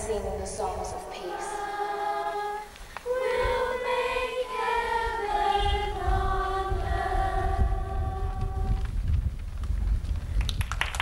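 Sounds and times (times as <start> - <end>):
choir singing long notes: 0.8 - 8.8
low rumble: 4.9 - 10.5.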